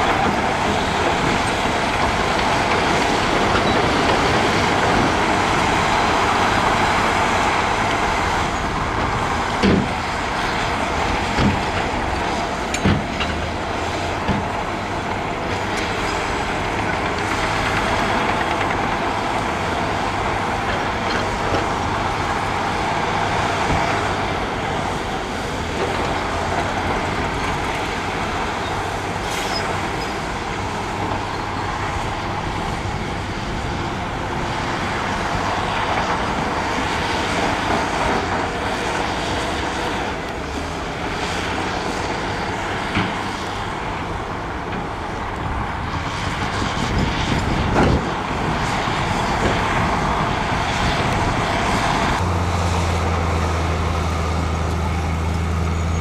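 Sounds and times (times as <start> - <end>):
diesel earthmoving machinery: 0.0 - 56.0.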